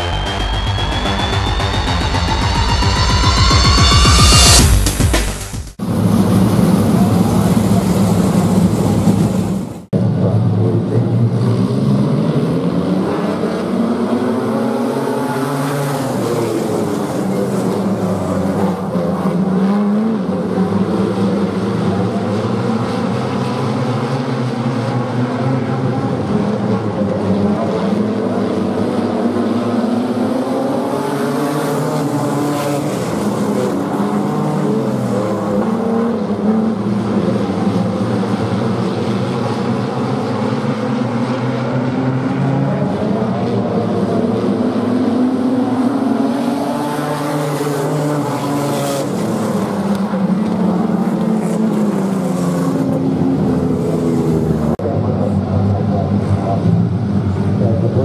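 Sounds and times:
electronic intro music: 0:00.0 - 0:06.9
race car engines revving: 0:00.0 - 0:58.0.

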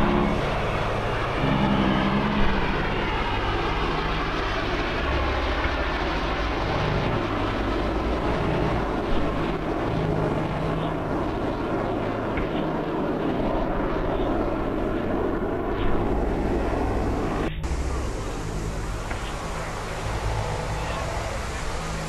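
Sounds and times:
fighter jets flying overhead: 0:00.0 - 0:22.0.

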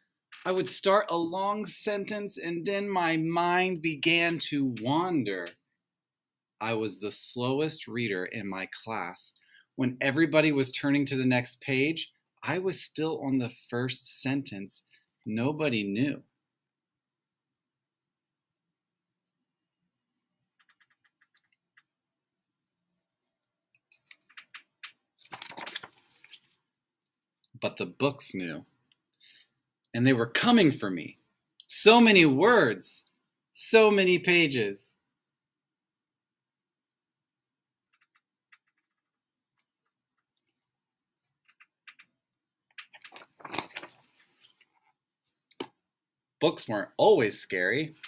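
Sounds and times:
page turning rustle: 0:23.9 - 0:26.6, 0:42.7 - 0:45.0
paper page taps and crinkles: 0:24.2 - 0:26.5, 0:42.7 - 0:44.7.

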